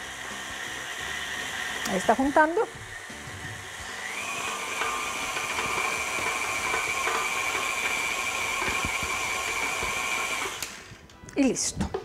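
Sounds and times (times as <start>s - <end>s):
beater working dough in bowl: 0.0s - 10.7s
stand mixer motor whining: 0.0s - 10.9s.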